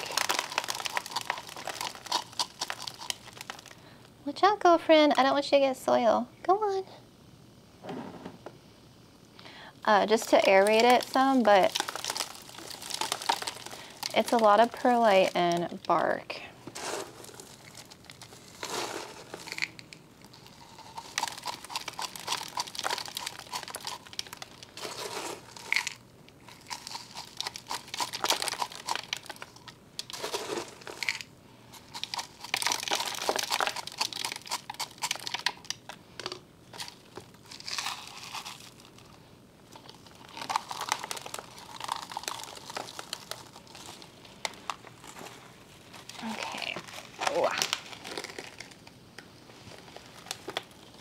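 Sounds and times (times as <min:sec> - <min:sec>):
potting mix crunching: 0:00.0 - 0:04.0, 0:09.9 - 0:51.0.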